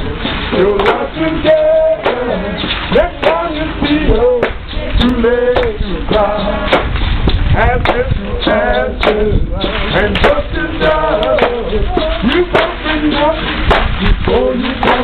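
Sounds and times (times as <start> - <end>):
sharp knocks: 13.7 - 14.0.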